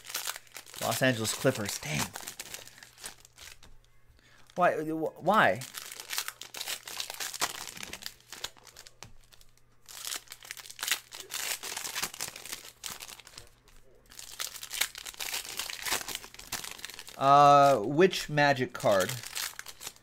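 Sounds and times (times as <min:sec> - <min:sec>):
foil wrapper crinkling: 0:00.0 - 0:03.7, 0:05.4 - 0:17.9, 0:18.7 - 0:20.0.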